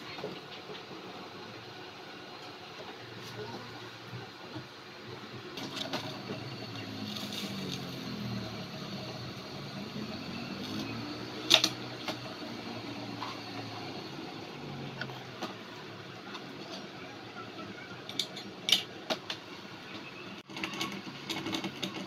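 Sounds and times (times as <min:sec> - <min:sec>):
water boiling in pot: 0:00.0 - 0:17.0
camping stove burning: 0:00.0 - 0:17.2.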